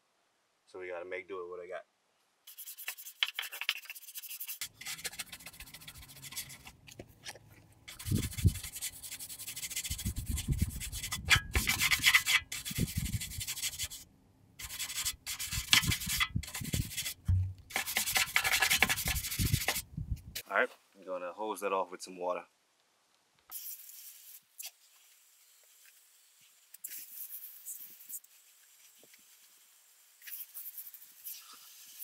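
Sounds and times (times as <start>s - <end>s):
brush scrubbing metal: 2.5s - 6.8s, 7.9s - 14.0s, 14.6s - 19.8s.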